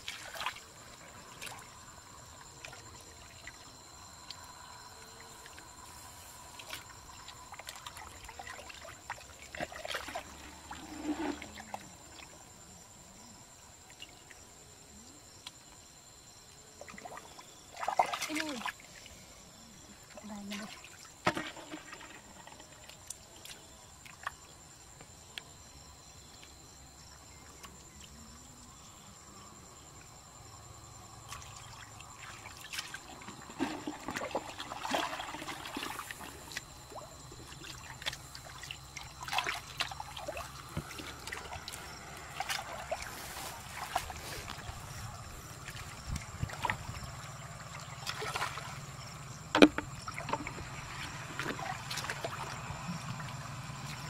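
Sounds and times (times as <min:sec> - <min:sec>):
hands splashing in muddy water: 0:48.0 - 0:48.8.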